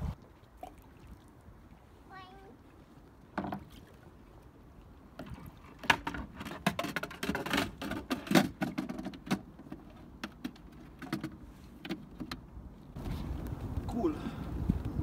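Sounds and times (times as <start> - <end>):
plastic and metal clunks and rattles: 3.4 - 3.7, 5.2 - 12.5.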